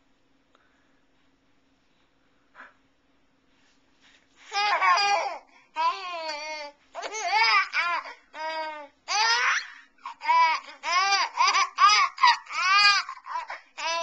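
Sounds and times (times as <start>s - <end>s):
baby laughing and squealing: 4.5s - 14.0s.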